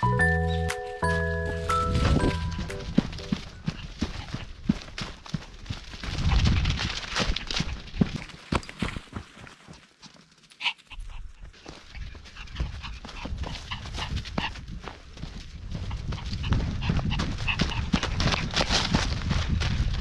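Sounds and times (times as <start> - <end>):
paws crunching dry leaves: 0.3 - 20.0
dog panting: 3.2 - 4.9, 10.6 - 14.6, 15.7 - 18.6.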